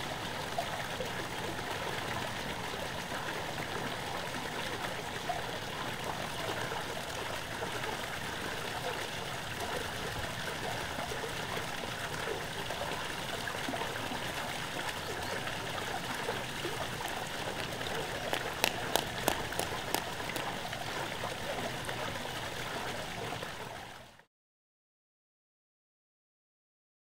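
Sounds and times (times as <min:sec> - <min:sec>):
running and trickling water: 0:00.0 - 0:24.3
sharp clicks or small splashes: 0:16.7 - 0:20.8.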